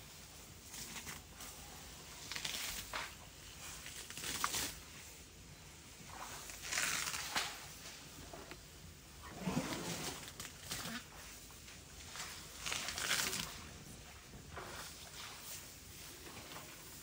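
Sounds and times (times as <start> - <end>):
elephant tearing grass: 6.1 - 7.6, 9.2 - 11.3, 12.1 - 14.0.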